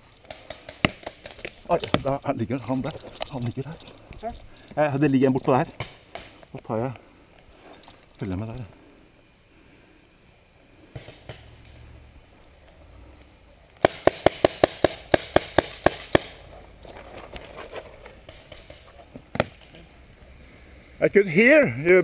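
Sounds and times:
paintball marker rapid firing: 0.3 - 2.0, 13.8 - 16.4.

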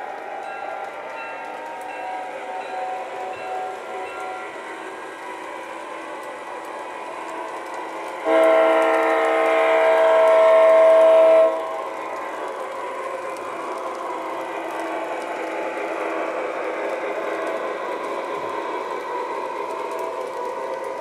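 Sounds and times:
train horn blast: 8.2 - 11.9.

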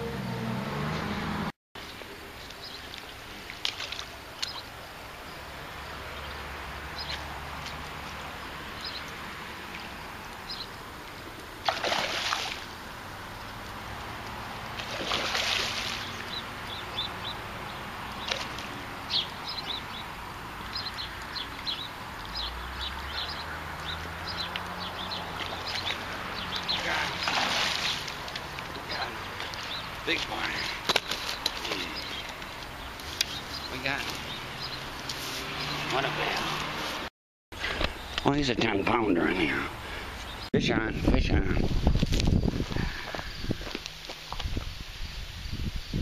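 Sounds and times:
fish splashing in water: 2.9 - 4.7, 11.4 - 12.9, 13.6 - 16.8, 17.4 - 19.0, 23.5 - 28.6.

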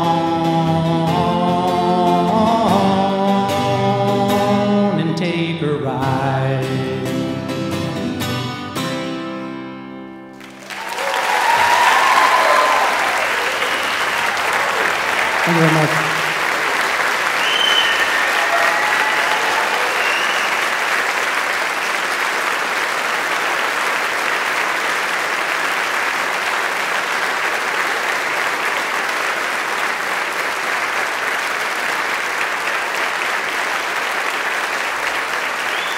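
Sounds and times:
audience applauding: 10.4 - 35.9
audience cheering: 10.4 - 35.9.

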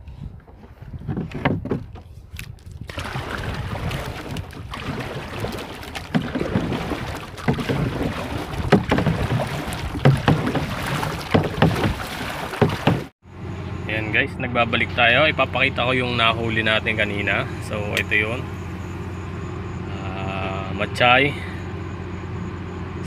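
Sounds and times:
wind noise on microphone: 0.0 - 5.6
water splashing around a boat: 0.5 - 13.2
knocks on a boat: 3.4 - 13.1.

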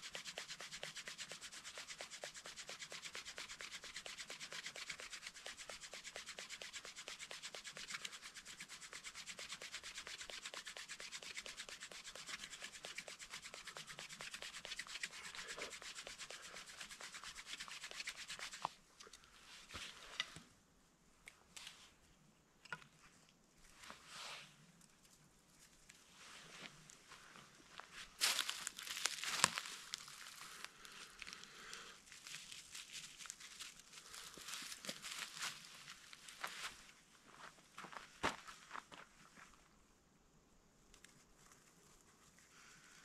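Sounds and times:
hand drill rubbing on wooden board: 0.0 - 18.7
faint scrapes and rustles: 0.0 - 20.6, 21.4 - 39.8, 40.9 - 43.0.

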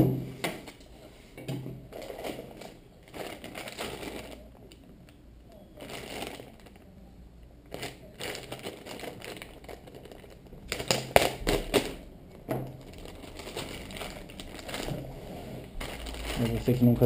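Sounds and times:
plastic bag crinkling: 1.9 - 4.9, 5.8 - 6.9, 7.6 - 17.0.

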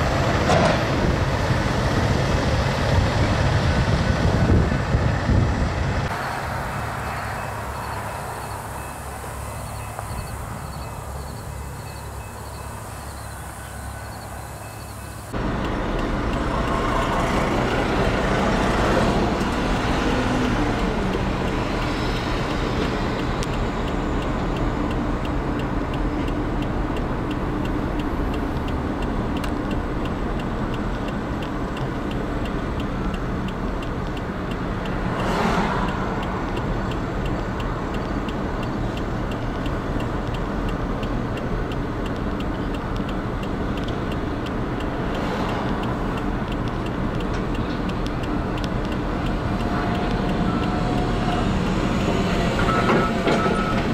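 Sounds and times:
vehicle road and engine noise: 0.0 - 53.9
faint regular ticking: 14.6 - 18.6, 19.4 - 52.1
oncoming vehicle passing: 34.6 - 37.2.

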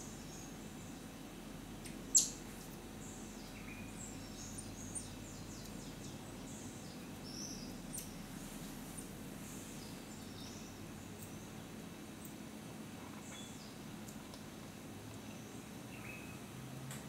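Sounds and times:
faint forest background: 0.0 - 17.0
high-pitched bird chirps and trills: 2.1 - 2.4, 3.0 - 8.2, 15.3 - 16.5.

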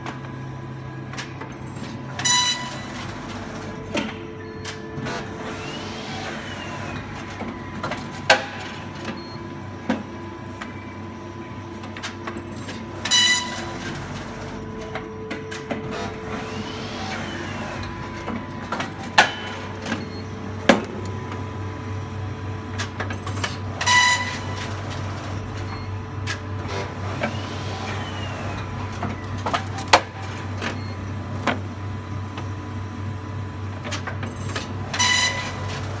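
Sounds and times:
machine hum: 0.0 - 36.0
mechanical clunks and clattering: 1.1 - 10.8, 11.8 - 21.5.

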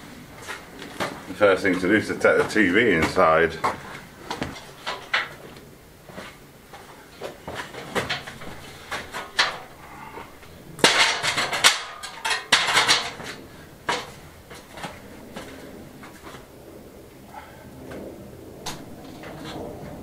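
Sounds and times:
knocks of ladder being climbed: 7.2 - 9.7, 10.8 - 15.6
metal stepladder clanking: 7.5 - 9.8, 10.8 - 15.0
loud metallic clattering: 10.5 - 15.0.

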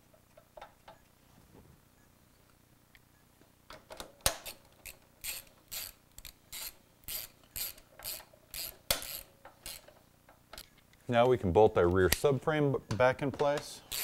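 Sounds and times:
ratchet wrench clicking: 4.3 - 10.0.

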